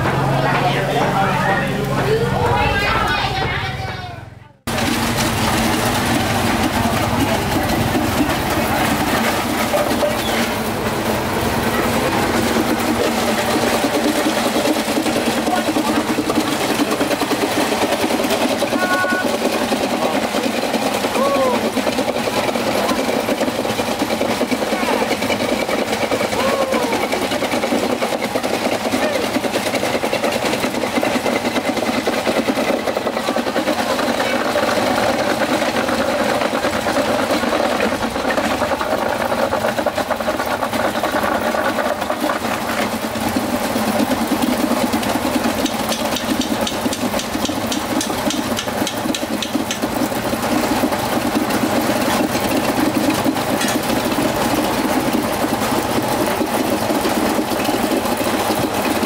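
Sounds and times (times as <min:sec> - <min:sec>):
voices chattering: 0:00.0 - 0:04.7
small engines running: 0:00.0 - 0:59.0.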